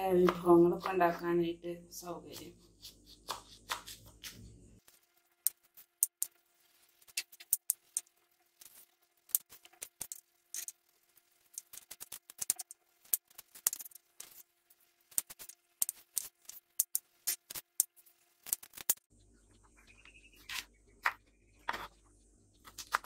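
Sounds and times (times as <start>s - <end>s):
knife chopping on wooden board: 2.3s - 4.4s.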